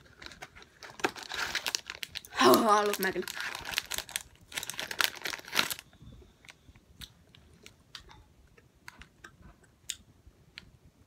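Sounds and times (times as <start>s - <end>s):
plastic packet crinkling: 0.0s - 6.6s.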